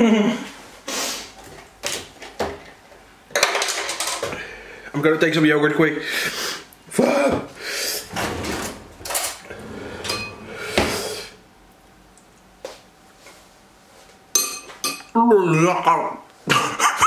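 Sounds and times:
knocks and clatter of items: 0:03.3 - 0:04.4
refrigerator being opened: 0:08.1 - 0:11.2.

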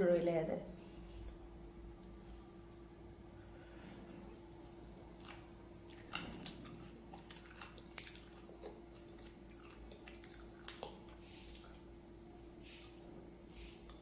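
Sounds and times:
faint steady hum: 0:00.0 - 0:14.0
person chewing: 0:04.2 - 0:14.0.

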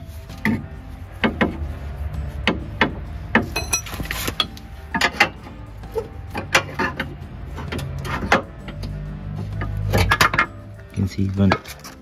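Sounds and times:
metallic knocks and clinks: 0:03.4 - 0:05.4
ringing metal scrape: 0:03.5 - 0:05.1.

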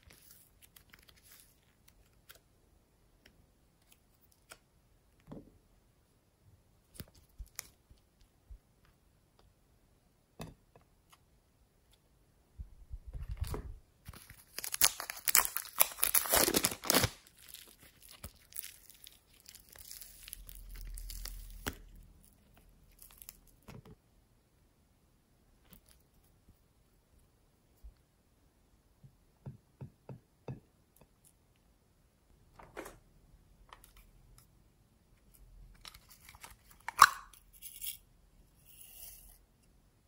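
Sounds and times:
sticky slime crackling and tearing: 0:14.4 - 0:23.5.

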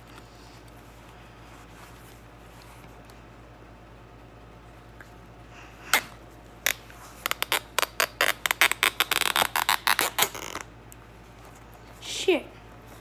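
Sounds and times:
zip tie ratcheting clicks: 0:06.7 - 0:10.6.

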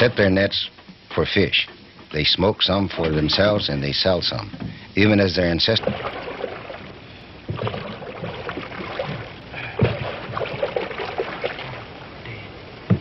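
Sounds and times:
water splashing around boat: 0:02.7 - 0:13.0.

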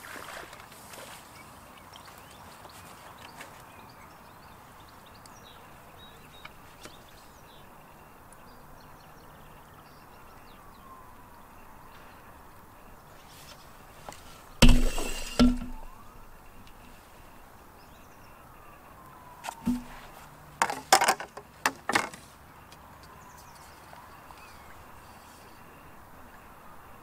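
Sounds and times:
loud hard knocks: 0:14.6 - 0:15.9, 0:19.6 - 0:20.0.

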